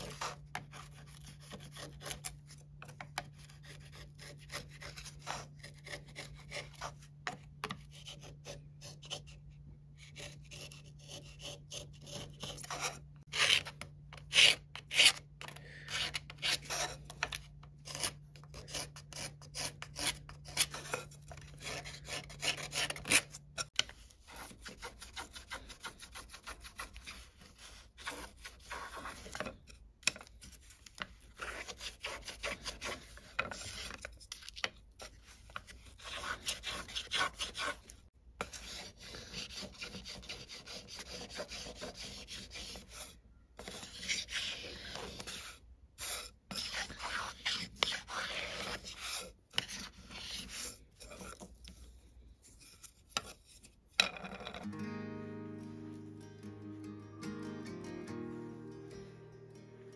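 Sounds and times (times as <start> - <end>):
chisel and plane scraping wood: 3.1 - 9.4, 10.0 - 30.8, 31.4 - 34.2, 35.0 - 51.8.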